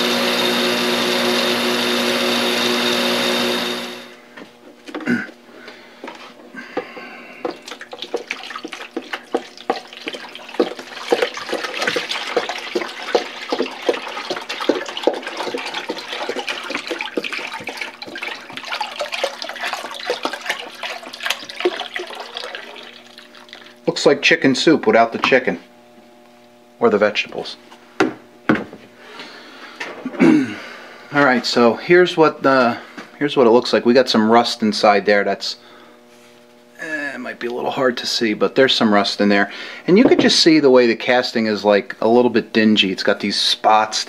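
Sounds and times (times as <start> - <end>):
bench buffer running: 0.0 - 43.9
liquid pouring into plastic tub: 7.4 - 23.9.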